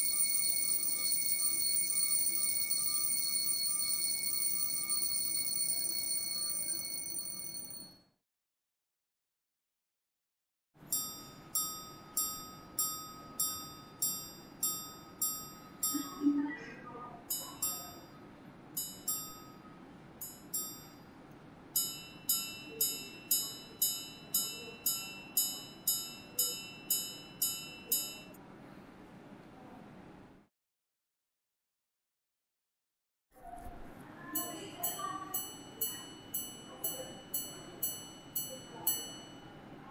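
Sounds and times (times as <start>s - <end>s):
watch chiming on gongs: 0.0s - 7.8s, 17.3s - 18.1s, 21.8s - 28.4s, 34.4s - 39.7s.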